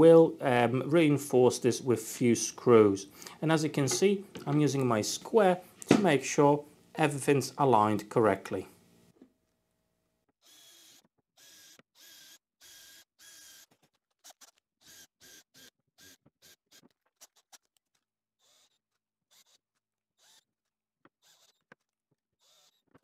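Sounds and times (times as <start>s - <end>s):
cordless drill whining: 10.4s - 17.6s, 18.4s - 19.6s, 20.2s - 21.8s, 22.4s - 23.0s.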